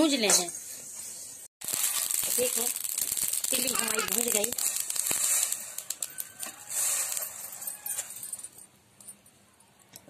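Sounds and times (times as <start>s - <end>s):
seeds pattering on metal plate: 1.6s - 8.4s.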